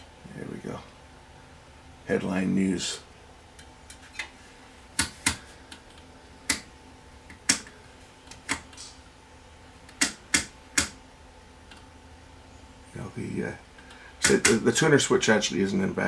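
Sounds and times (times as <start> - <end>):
rotary switch clicking: 6.4 - 6.7, 7.3 - 8.7, 9.9 - 11.0, 14.2 - 14.6.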